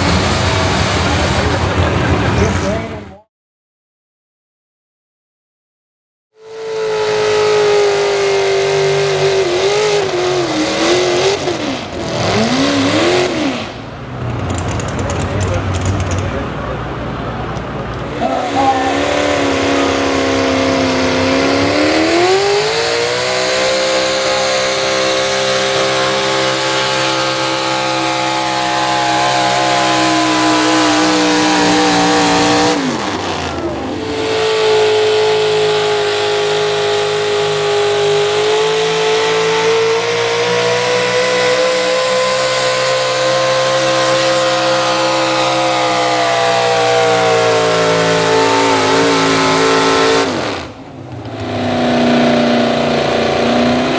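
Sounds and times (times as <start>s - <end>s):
truck engine revving: 0.0s - 3.3s, 6.3s - 53.9s.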